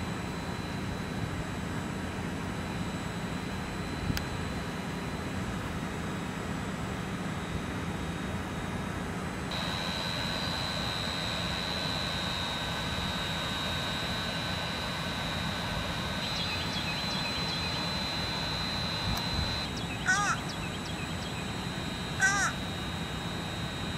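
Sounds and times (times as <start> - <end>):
outdoor background rush: 0.0 - 23.9
high-pitched tone: 9.5 - 23.9
faint bird chirps: 16.0 - 22.6.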